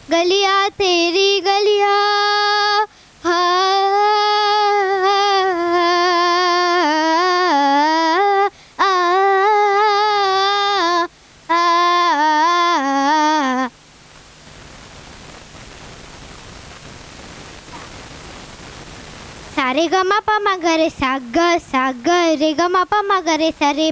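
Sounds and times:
girl singing unaccompanied: 0.0s - 13.8s, 19.5s - 23.9s
steady hiss: 0.0s - 23.9s.

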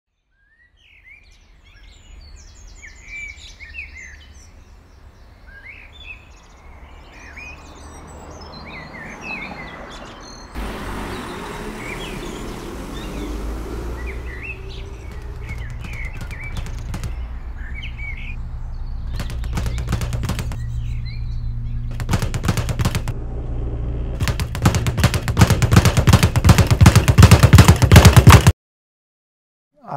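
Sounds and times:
birds chirping and twittering: 0.2s - 23.2s
fast rattling clicks: 15.0s - 17.2s, 19.1s - 20.6s, 21.9s - 23.1s.

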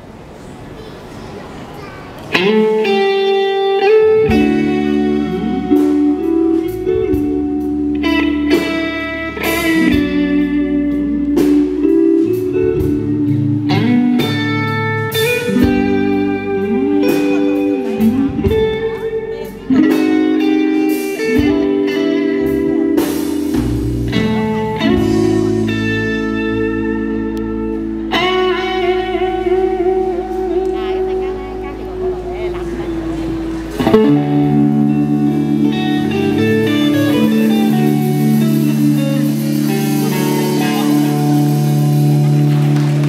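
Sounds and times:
drums: 2.1s - 43.0s
electric guitar solo: 2.2s - 43.0s
electric bass: 2.4s - 43.0s.

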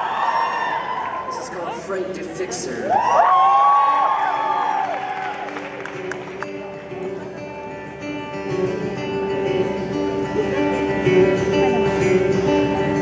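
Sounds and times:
acoustic guitar playing: 4.2s - 13.0s.

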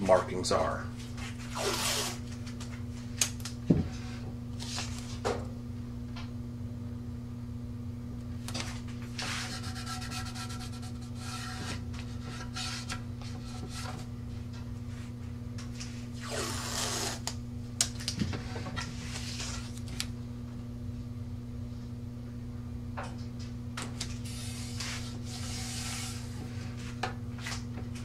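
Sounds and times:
hand rubbing tape: 1.3s - 2.3s, 9.2s - 14.0s, 16.2s - 17.4s, 24.2s - 26.4s
tape peeling off roll: 1.5s - 2.3s, 16.2s - 17.4s.

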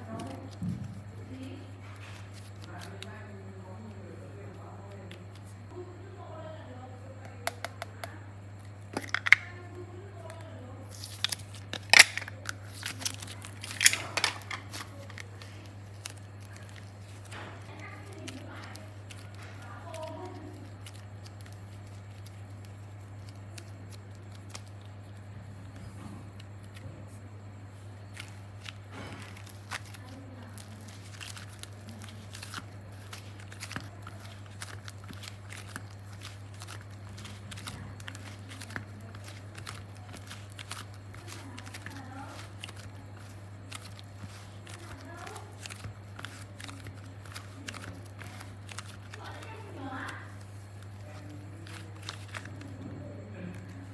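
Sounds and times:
clay peeling and squishing: 0.0s - 4.0s, 7.2s - 27.0s, 27.7s - 53.9s
steady low hum: 0.0s - 53.9s
clay squashed and kneaded by hand: 28.0s - 52.8s.

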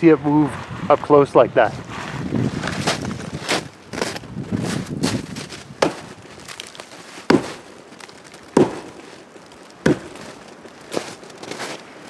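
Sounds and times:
axe striking tree trunk: 5.8s - 11.7s.

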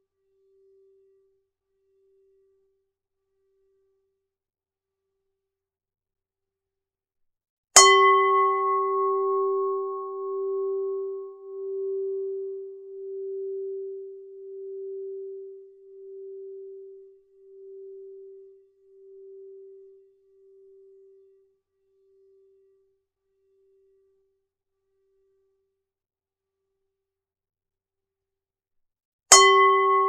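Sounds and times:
bowl bell ringing: 29.3s - 30.0s.

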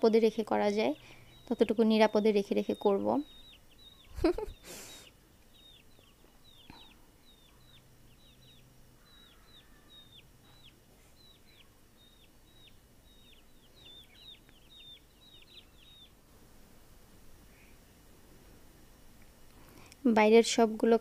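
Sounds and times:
chicks peeping: 0.1s - 16.3s.

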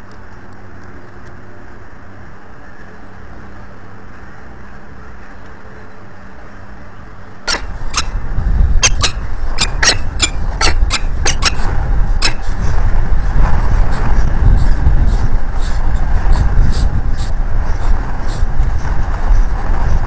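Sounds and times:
quiet steady hum: 0.0s - 20.0s
falcon calling: 7.5s - 12.5s
wind rumbling on microphone: 7.5s - 20.0s.

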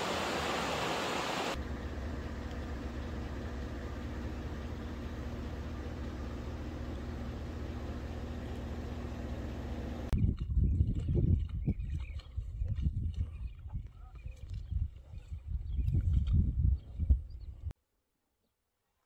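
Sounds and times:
engine humming: 0.0s - 10.2s.

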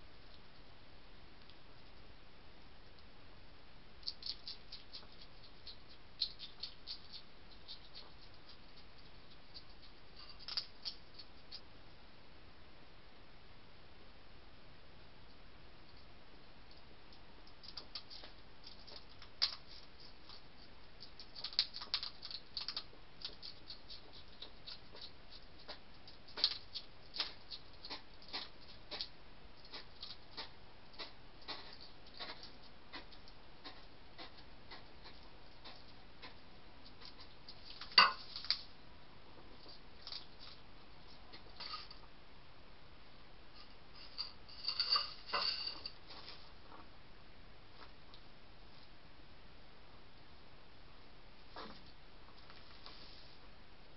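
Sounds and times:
hedgehog crunching dry food: 4.0s - 11.6s, 16.7s - 38.7s, 39.5s - 42.0s.

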